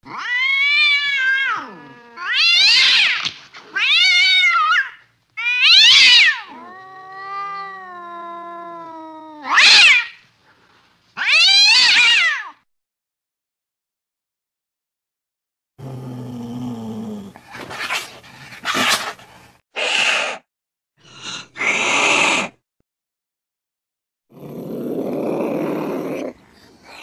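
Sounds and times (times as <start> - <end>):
cat meowing and yowling: 0.0 - 10.2, 11.2 - 12.6.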